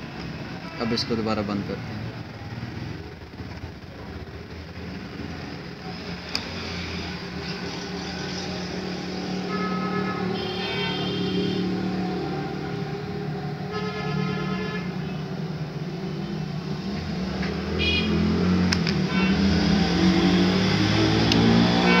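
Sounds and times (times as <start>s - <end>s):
road traffic rumbling: 0.0s - 22.0s
car horn toots: 9.5s - 11.7s, 17.8s - 18.2s, 21.8s - 22.0s.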